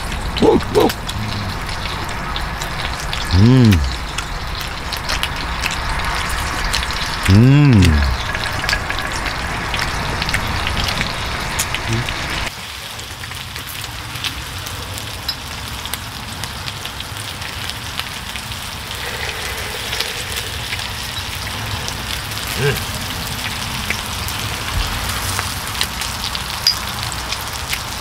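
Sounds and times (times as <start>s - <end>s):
meat sizzling in a grill pan: 8.2s - 28.0s.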